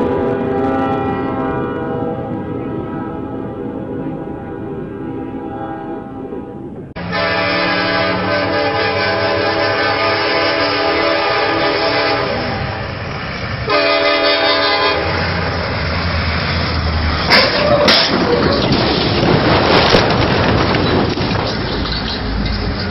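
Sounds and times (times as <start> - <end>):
locomotive air horn blast: 0.0 - 3.8, 4.4 - 12.8, 13.6 - 15.4, 17.3 - 18.1
train rumbling: 0.0 - 22.9
loud crash of train collision: 17.1 - 22.9.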